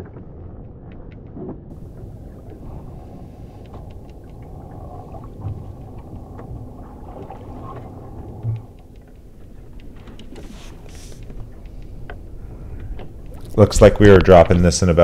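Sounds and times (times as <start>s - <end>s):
wind rumbling on microphone: 0.0s - 15.0s
water washing against boat hull: 1.7s - 14.8s
rope clicks: 7.7s - 14.6s.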